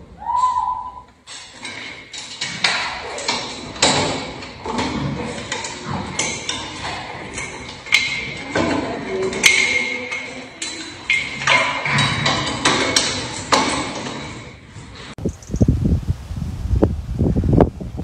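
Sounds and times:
metal gate rattling and clanking: 0:01.2 - 0:15.2.

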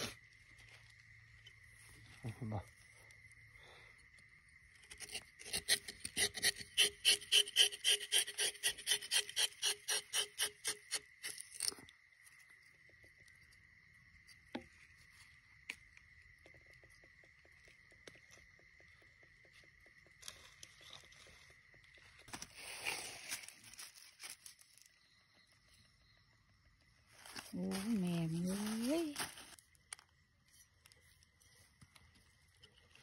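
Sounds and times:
knife rasping bark: 0:05.0 - 0:11.4.

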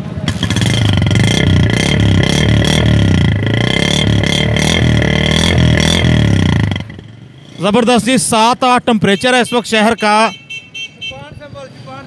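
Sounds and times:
motorcycle engine running: 0:00.0 - 0:08.2.

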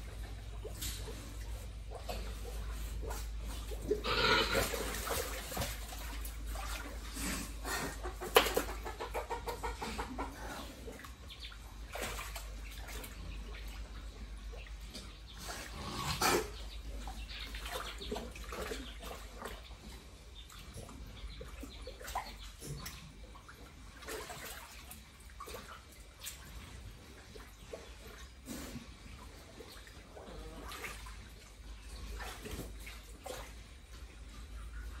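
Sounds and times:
water splashing: 0:00.0 - 0:07.2, 0:11.8 - 0:13.4
hen clucking: 0:01.3 - 0:04.9, 0:07.5 - 0:11.6.

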